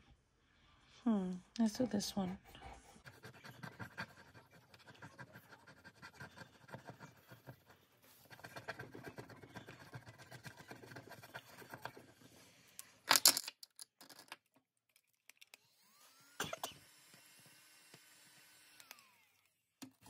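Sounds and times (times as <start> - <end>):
pen scratching scratch card: 3.0 - 12.3.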